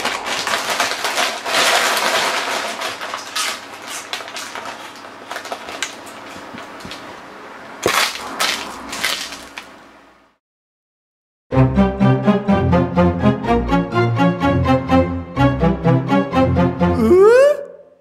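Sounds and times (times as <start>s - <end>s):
foil snack bag crinkling: 0.0s - 7.1s, 7.8s - 9.8s.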